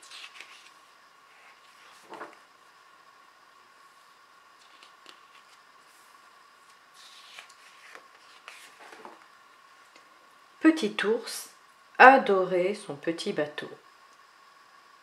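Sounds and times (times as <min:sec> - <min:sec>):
book page rustling: 0:00.0 - 0:00.8, 0:01.4 - 0:02.4, 0:04.6 - 0:09.2
faint steady hum: 0:00.0 - 0:15.0.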